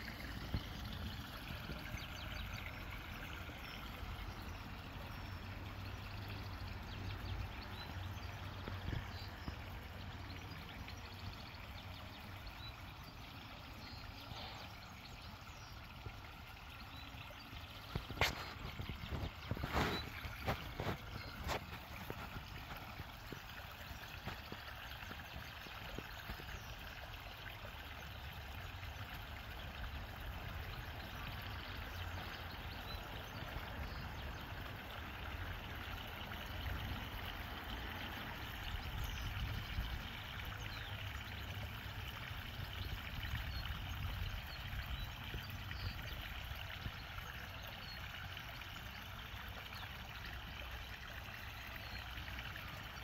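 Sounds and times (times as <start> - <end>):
water trickling: 0.0 - 53.0.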